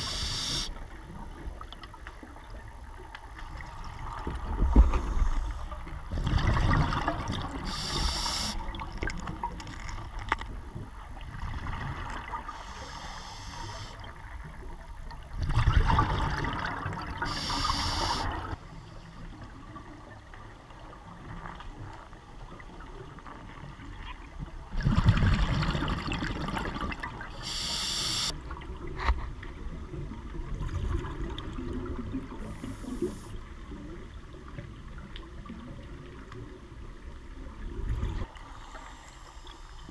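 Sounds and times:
regulator high hiss: 0.0 - 0.7, 7.7 - 8.6, 17.3 - 18.3, 27.4 - 28.3
exhaled bubbles underwater: 0.0 - 10.1, 14.0 - 18.6, 23.8 - 38.5.

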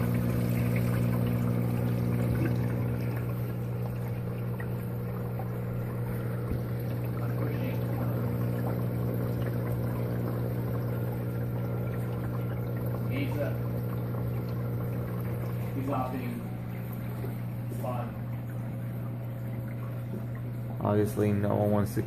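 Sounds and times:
pump humming: 0.0 - 22.0
water trickling and splashing: 0.0 - 22.0.

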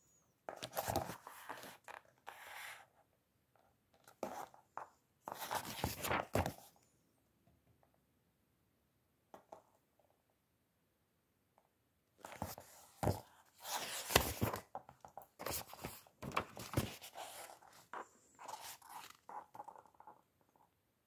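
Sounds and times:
book pages turning: 0.6 - 2.7, 5.3 - 6.6, 12.2 - 19.6.

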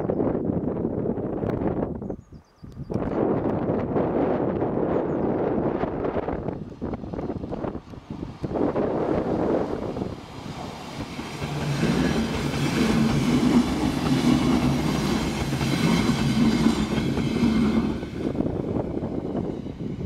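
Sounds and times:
electric train passing: 5.3 - 20.0.

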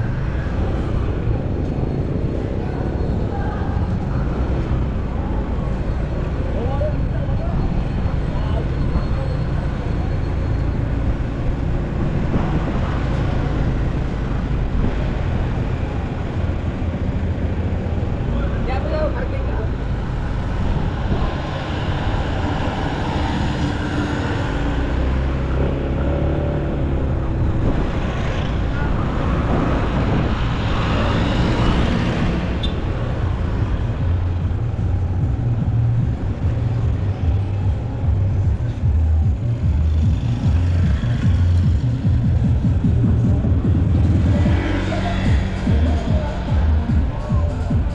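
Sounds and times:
road noise: 0.0 - 47.9
motorcycle engine rumbling: 19.6 - 47.9.

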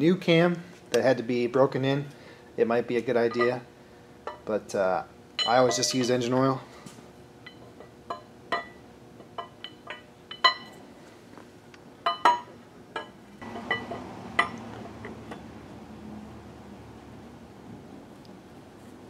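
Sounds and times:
light metallic clinks: 12.1 - 15.5.

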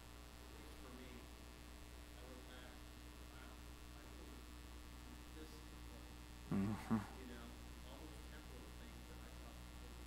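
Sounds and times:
electrical mains hum: 0.0 - 10.0
person's voice: 6.5 - 7.4.

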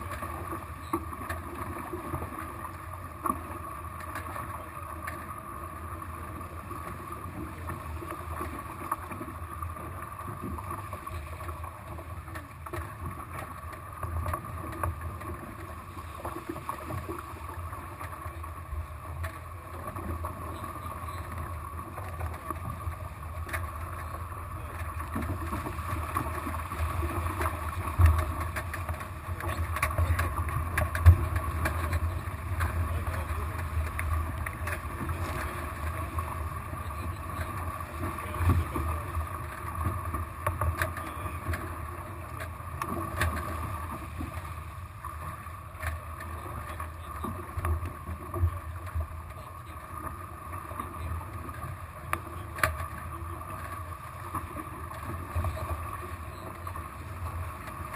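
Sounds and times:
water rushing along hulls: 0.0 - 57.9
water slapping hull: 0.0 - 57.9.

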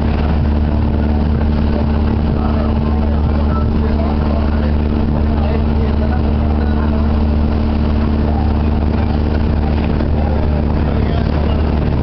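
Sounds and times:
motorboat engine drone: 0.0 - 12.0.

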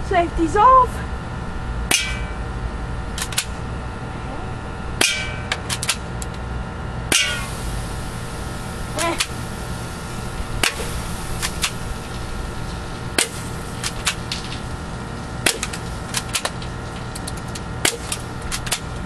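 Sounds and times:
airsoft gun shots: 7.1 - 7.6, 13.1 - 14.6, 15.4 - 16.6, 17.8 - 18.8.

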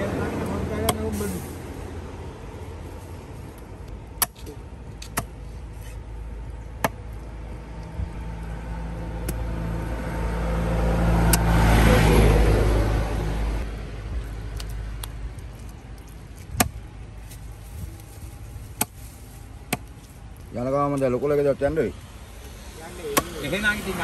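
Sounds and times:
motor vehicle passing: 7.2 - 15.0.

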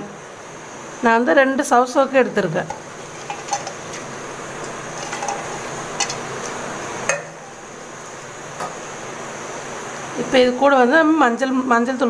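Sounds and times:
steady hiss: 0.0 - 12.0
pot knocks and clinks: 2.7 - 7.6.

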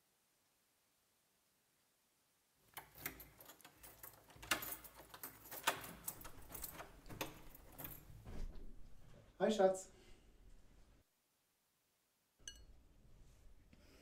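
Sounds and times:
keys clicking in door lock: 2.7 - 8.2.

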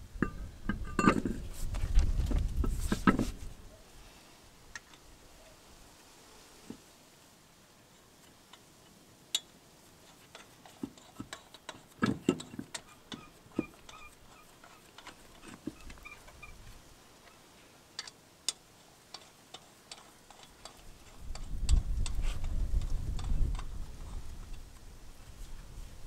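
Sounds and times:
lug nuts clicking on metal: 10.1 - 16.5, 18.0 - 22.2.

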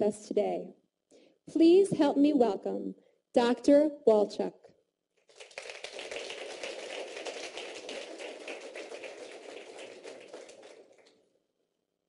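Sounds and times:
audience applauding: 5.3 - 11.2.

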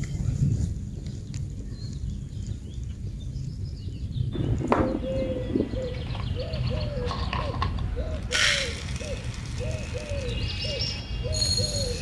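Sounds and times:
bird chirps: 1.6 - 12.0
wavering bird call: 5.1 - 12.0.

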